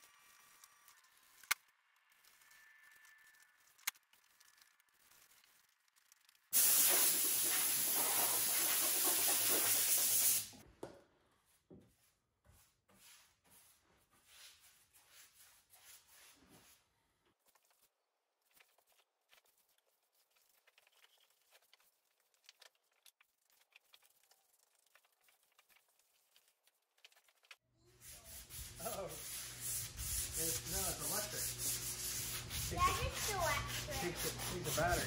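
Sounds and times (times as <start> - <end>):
compressed-air blow gun hissing: 6.6 - 10.5
brush strokes on wood: 28.0 - 35.0.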